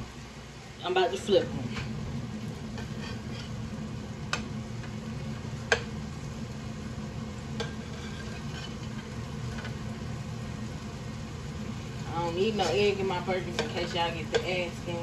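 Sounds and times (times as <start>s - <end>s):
low hum: 0.0s - 15.0s
patties frying in a pan: 0.0s - 15.0s
spatula scraping a pan: 2.7s - 3.7s, 7.6s - 9.8s
spatula knocking against pan: 5.7s - 5.9s, 13.5s - 14.5s.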